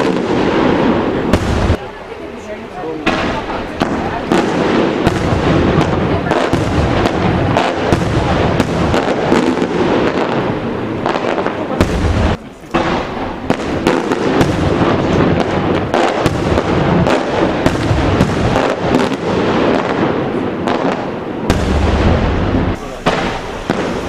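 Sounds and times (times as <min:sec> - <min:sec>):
fireworks bursting: 0:00.0 - 0:24.0
heavy low boom: 0:21.5 - 0:24.0.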